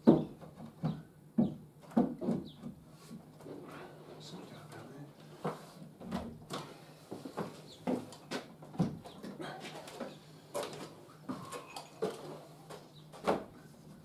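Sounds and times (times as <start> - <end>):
wooden knocks and taps: 0.0 - 2.8.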